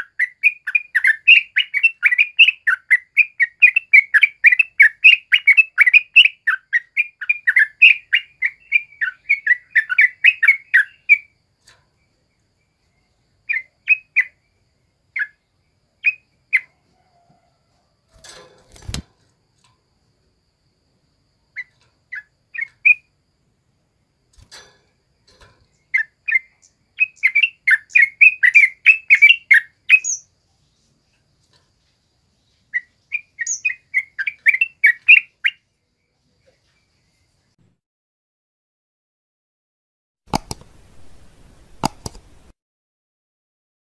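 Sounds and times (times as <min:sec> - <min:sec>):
bulbul singing: 0:00.0 - 0:11.4, 0:12.0 - 0:16.8, 0:21.5 - 0:23.1, 0:25.2 - 0:30.8, 0:32.3 - 0:35.7.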